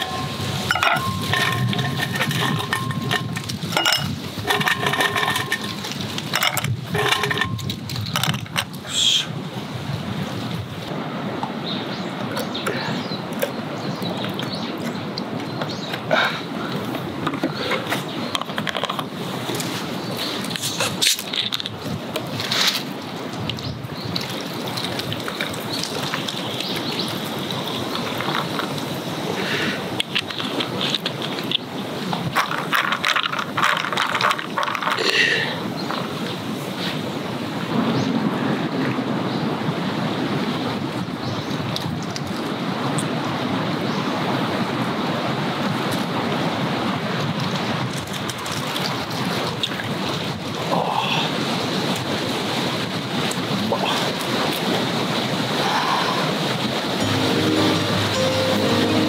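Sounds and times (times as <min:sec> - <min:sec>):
ice cubes clinking and crunching: 0:00.0 - 0:08.4.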